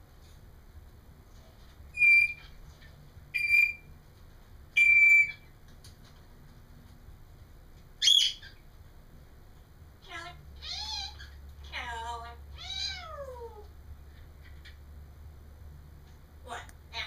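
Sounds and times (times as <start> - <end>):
parrot whistling beep-like notes: 1.9 - 2.4, 3.4 - 3.9, 4.8 - 5.4
parrot high call: 1.9 - 2.6, 3.3 - 3.9, 4.8 - 5.5, 8.0 - 8.6.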